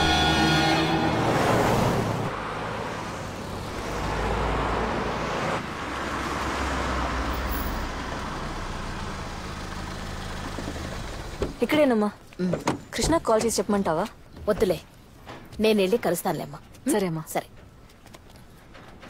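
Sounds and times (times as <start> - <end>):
vehicles driving past: 0.0 - 11.6.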